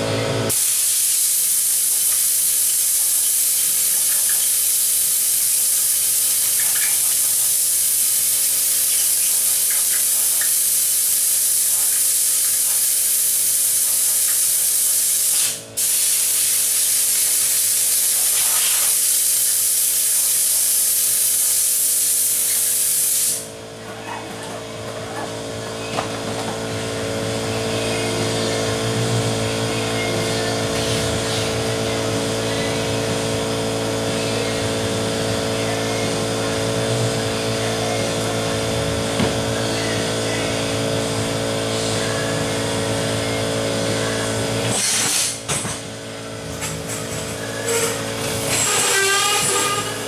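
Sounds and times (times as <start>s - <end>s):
compressed-air blow gun hissing: 0.5s - 23.5s.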